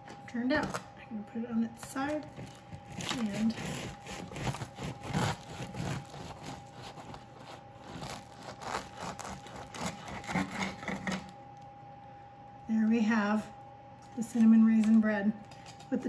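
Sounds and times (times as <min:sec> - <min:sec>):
knife sawing through crusty bread: 0:02.9 - 0:11.3.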